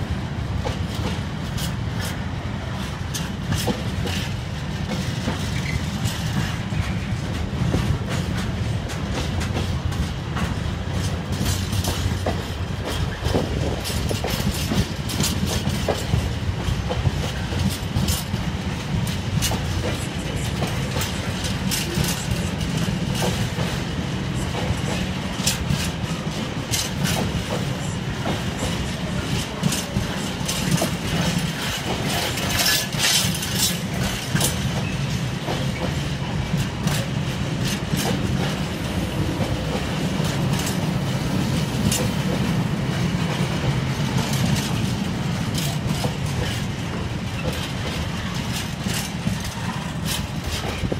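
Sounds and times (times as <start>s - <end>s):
freight train wheels rumbling: 0.0s - 50.9s
wheels clicking over rail joints: 0.6s - 50.9s
empty wagons rattling: 11.0s - 38.6s, 44.0s - 50.9s.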